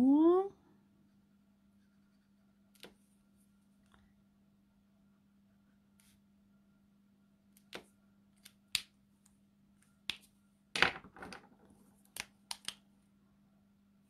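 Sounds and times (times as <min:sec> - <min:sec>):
plastic marker caps clicking: 0:12.1 - 0:12.8.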